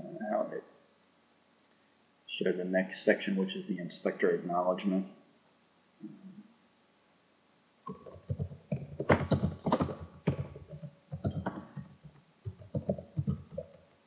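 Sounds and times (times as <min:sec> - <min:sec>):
keyboard typing: 0:07.9 - 0:13.8.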